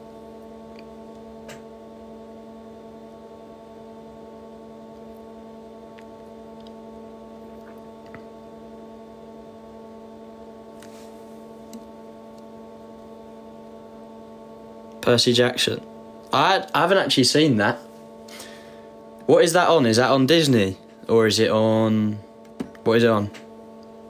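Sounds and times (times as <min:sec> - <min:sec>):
steady hum of held pitches: 0:00.0 - 0:24.0.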